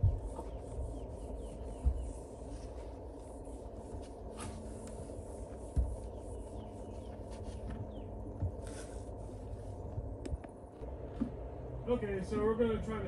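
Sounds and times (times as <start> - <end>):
low steady rumble: 0.0 - 13.0
dull thump: 5.7 - 6.1.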